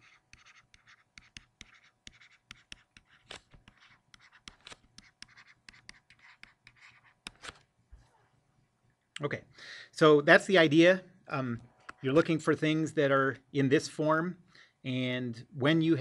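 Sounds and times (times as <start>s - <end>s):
stylus tapping and scratching on tablet: 0.0s - 8.3s, 11.7s - 12.2s.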